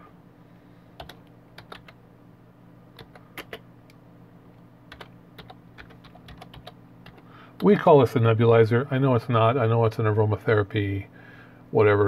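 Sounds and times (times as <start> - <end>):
low steady hum: 0.0 - 12.0
computer keyboard typing: 1.0 - 2.0, 3.0 - 3.6, 4.9 - 7.3.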